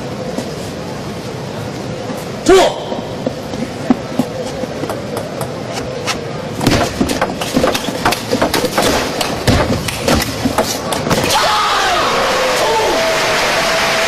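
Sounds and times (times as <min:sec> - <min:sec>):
crowd applause: 0:12.0 - 0:14.0.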